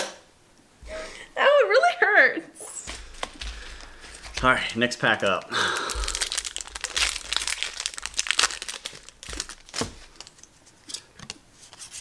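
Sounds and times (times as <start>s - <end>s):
foil wrapper crinkling and tearing: 2.9s - 10.5s.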